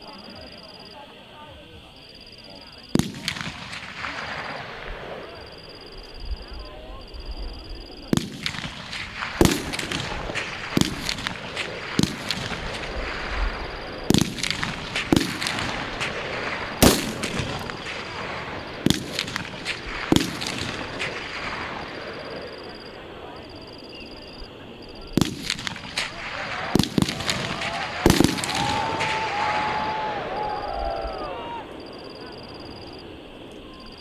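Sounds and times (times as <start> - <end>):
rifle shots: 3.0 - 5.6, 8.1 - 22.3, 25.2 - 29.4.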